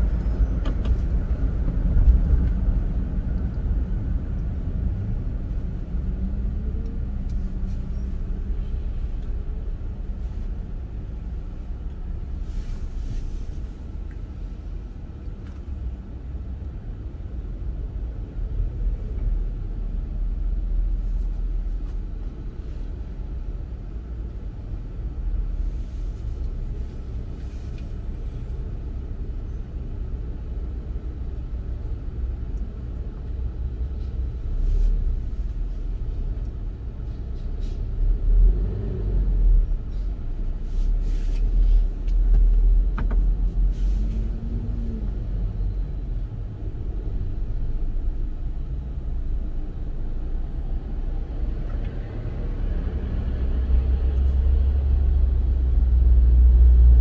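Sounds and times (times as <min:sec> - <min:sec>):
road traffic rumble: 0:00.0 - 0:57.0.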